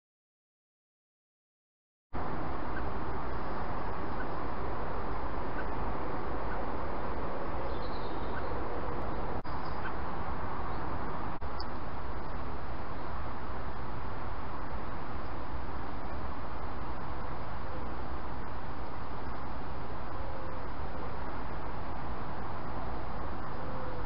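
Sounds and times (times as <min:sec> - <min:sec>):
faint bird chirps: 0:07.6 - 0:10.0, 0:10.6 - 0:13.2.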